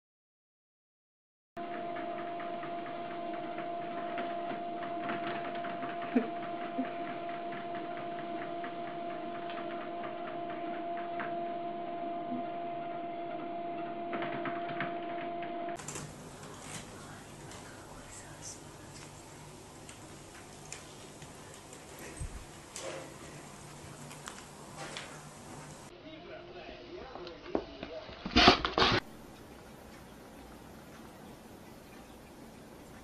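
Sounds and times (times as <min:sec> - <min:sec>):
treadmill motor hum: 0:01.6 - 0:17.9
treadmill belt ticking: 0:01.9 - 0:11.6.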